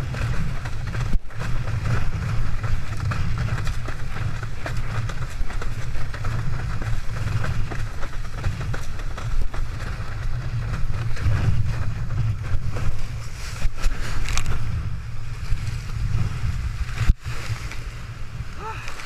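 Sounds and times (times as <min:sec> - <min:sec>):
hull slapping water: 0:00.0 - 0:14.5
board planing across water: 0:00.0 - 0:19.0
wind buffeting microphone: 0:00.0 - 0:19.0.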